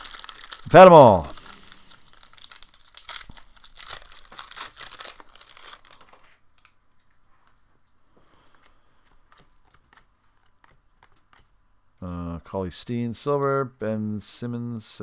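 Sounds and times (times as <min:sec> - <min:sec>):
foil wrapper crinkling and tearing: 0:00.0 - 0:06.8
soft clicks of cards handled: 0:06.1 - 0:11.6.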